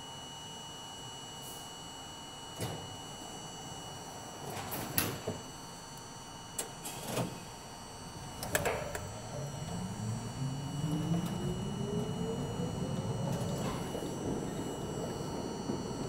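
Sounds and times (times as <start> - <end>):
equipment hum: 0.6 - 16.0
traction motor whine rising: 8.0 - 16.0.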